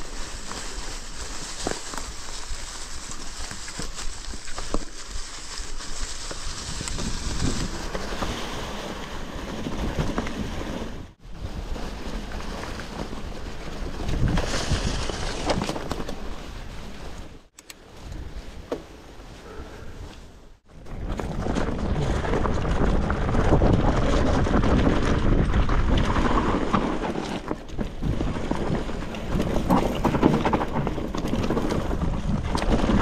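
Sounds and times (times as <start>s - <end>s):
tyres crackling on dry leaves: 0.0s - 18.0s
wind buffeting microphone: 6.4s - 16.8s, 20.7s - 33.0s
bike knocks and rattles: 20.8s - 33.0s.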